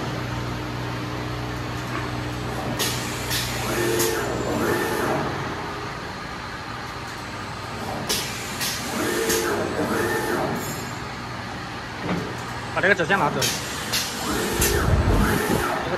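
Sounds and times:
steady machine hum: 0:00.0 - 0:15.9
pneumatic air hisses: 0:02.8 - 0:05.3, 0:08.0 - 0:10.9, 0:13.4 - 0:15.8.

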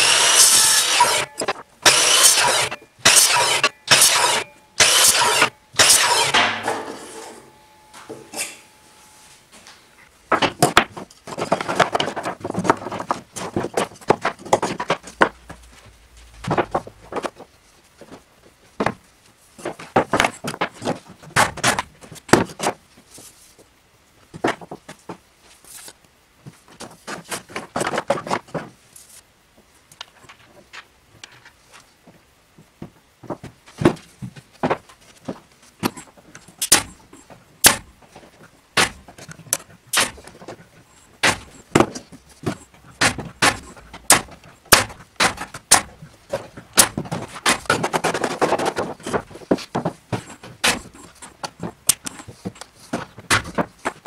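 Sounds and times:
pneumatic nail gun shots: 0:00.0 - 0:07.0
boards and bins knocking and scraping: 0:00.0 - 0:08.3, 0:10.3 - 0:22.8, 0:24.3 - 0:25.3, 0:26.5 - 0:28.8, 0:32.0 - 0:54.0.

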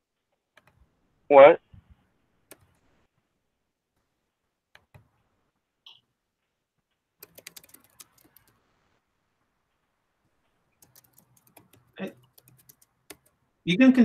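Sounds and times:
faint keyboard clicks: 0:00.5 - 0:00.8, 0:02.5 - 0:02.8, 0:07.2 - 0:08.6, 0:10.4 - 0:13.4.

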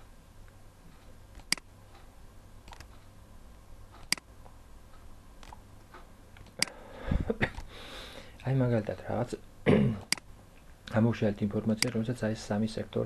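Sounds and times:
faint low hum: 0:00.0 - 0:13.0
computer mouse clicks: 0:01.3 - 0:03.1, 0:03.9 - 0:04.3, 0:05.4 - 0:06.8, 0:10.1 - 0:10.3.

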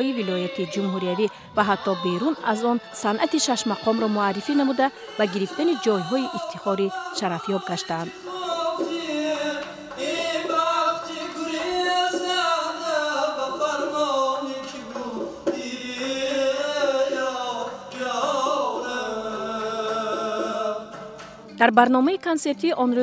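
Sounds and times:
male singers singing together: 0:00.0 - 0:21.5.

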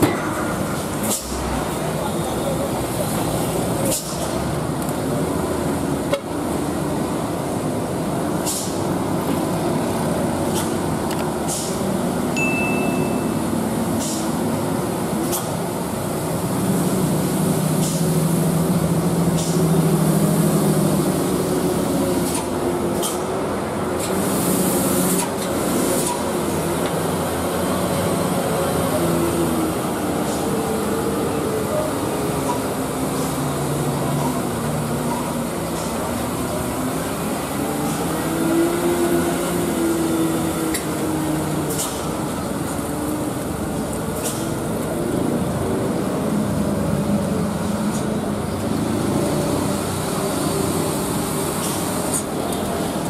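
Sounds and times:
vehicle engines revving: 0:13.5 - 0:53.0.

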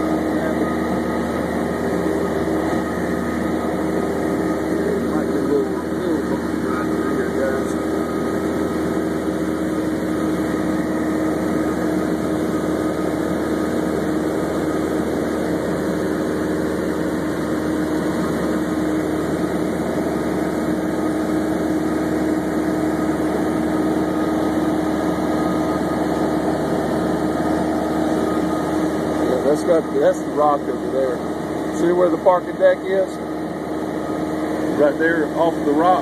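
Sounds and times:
plane engine droning in cabin: 0:00.0 - 0:36.0.

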